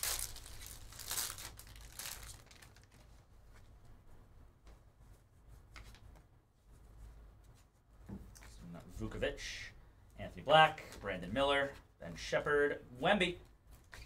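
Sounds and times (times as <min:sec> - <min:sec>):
plastic wrapper tearing and crinkling: 0:00.0 - 0:03.2.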